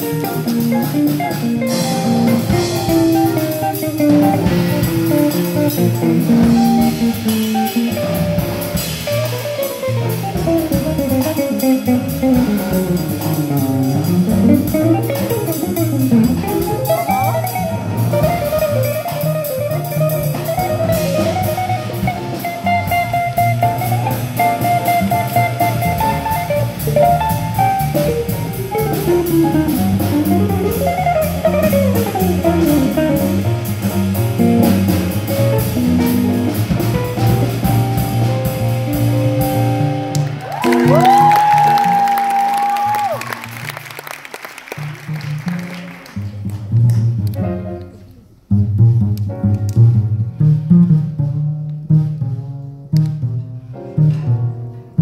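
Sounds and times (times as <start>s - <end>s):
upright bass: 0.0s - 42.2s, 44.7s - 55.0s
drum kit: 0.0s - 55.0s
electric guitar solo: 40.4s - 43.5s.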